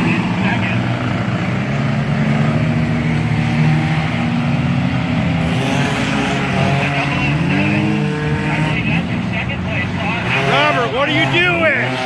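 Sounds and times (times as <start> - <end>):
race car engines droning: 0.0 - 12.0.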